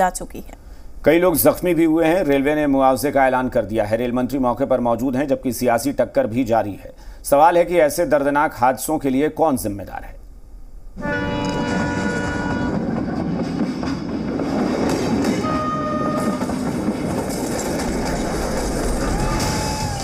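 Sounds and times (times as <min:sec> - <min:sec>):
train wheels clattering on rails: 0:11.2 - 0:20.0.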